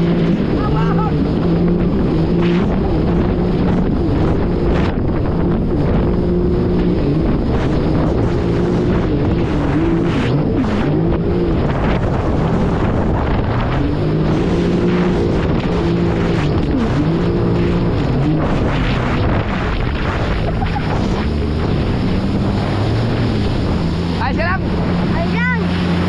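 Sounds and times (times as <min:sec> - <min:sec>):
jet ski engine revving: 0:00.0 - 0:26.0
wind buffeting microphone: 0:00.0 - 0:26.0.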